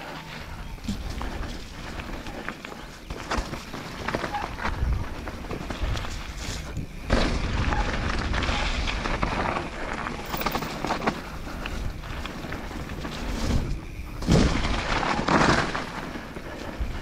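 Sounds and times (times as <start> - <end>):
bike rattling: 0.0 - 17.0
tyres on dirt: 0.0 - 17.0.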